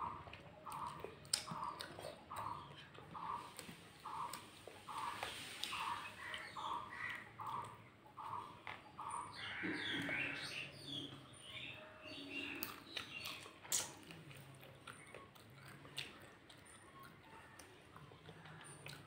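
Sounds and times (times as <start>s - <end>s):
person eating by hand: 0.0s - 11.2s, 12.3s - 19.0s
small birds chirping: 0.0s - 19.0s
crow cawing: 9.4s - 10.4s.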